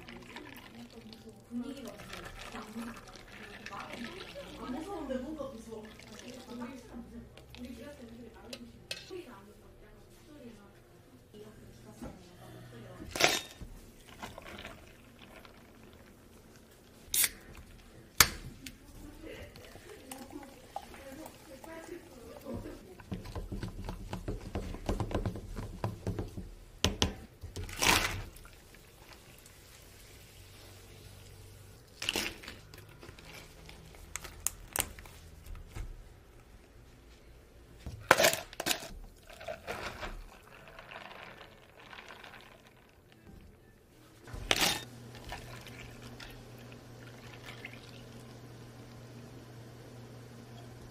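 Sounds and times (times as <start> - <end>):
drink pouring into plastic cup: 0.0 - 5.1, 5.8 - 6.8, 14.0 - 17.8, 19.5 - 23.7, 38.1 - 43.2, 44.3 - 48.4
ice and plastic cups clattering: 0.0 - 5.2, 13.1 - 16.2, 32.0 - 34.8, 37.9 - 43.2, 44.3 - 48.1
metal ice scoop clinking: 13.2 - 13.6, 44.4 - 44.9.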